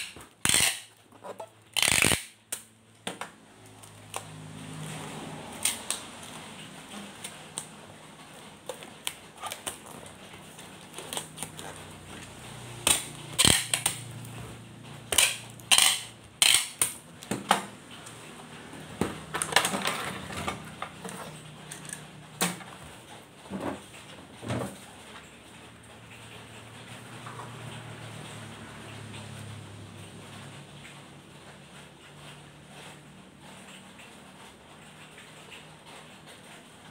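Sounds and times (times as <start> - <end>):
packing tape pulled off dispenser: 0.0 - 2.7, 5.5 - 6.4, 8.6 - 14.1, 15.1 - 17.0
wrapping paper crinkling: 5.5 - 14.3.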